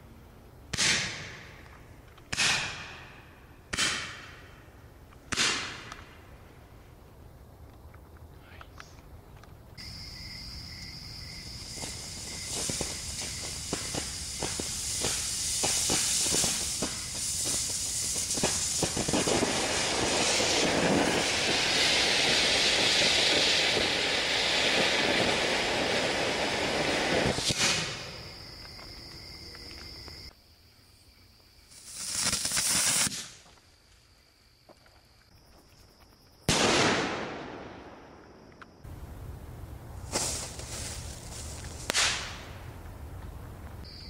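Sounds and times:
firework hissing and crackling: 0:11.2 - 0:28.4, 0:31.7 - 0:33.4, 0:40.0 - 0:42.7
short hissing bursts: 0:11.5 - 0:22.4, 0:31.7 - 0:33.4, 0:40.0 - 0:42.4.

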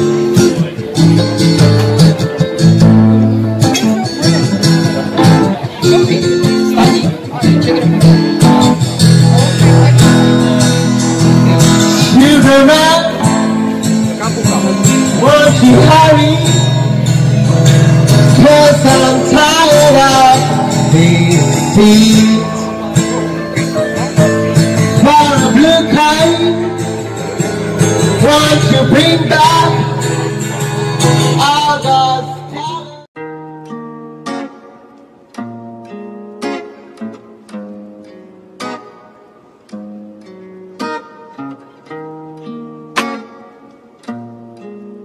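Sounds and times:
keyboard: 0:00.0 - 0:35.3
strummed acoustic guitar: 0:00.0 - 0:45.0
man singing: 0:09.5 - 0:33.1.

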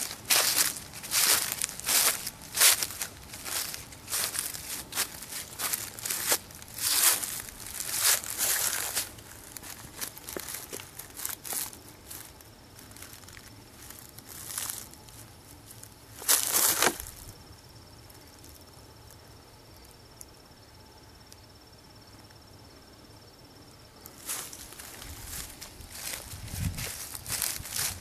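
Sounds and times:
rustling: 0:00.0 - 0:17.3, 0:24.2 - 0:28.0
high-pitched insect trill: 0:00.0 - 0:28.0.

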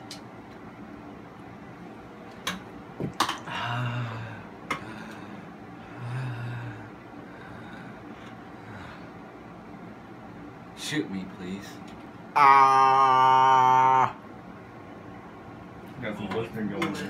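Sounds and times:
man groaning: 0:12.4 - 0:14.2.

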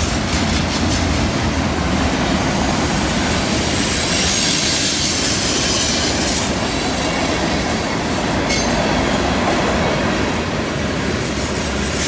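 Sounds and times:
train wheels clattering on rails: 0:00.0 - 0:12.0
high-pitched wheel squeal: 0:04.2 - 0:08.8.

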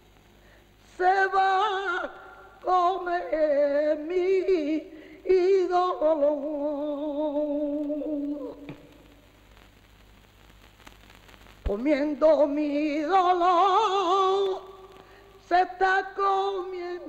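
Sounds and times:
person singing unaccompanied: 0:00.8 - 0:09.0, 0:11.7 - 0:17.0.

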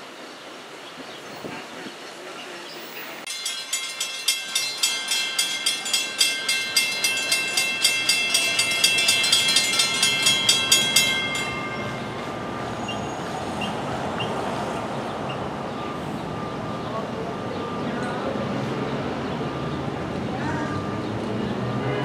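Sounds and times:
street traffic: 0:00.0 - 0:22.0
railroad crossing bell ringing: 0:03.3 - 0:14.4, 0:15.3 - 0:22.0.

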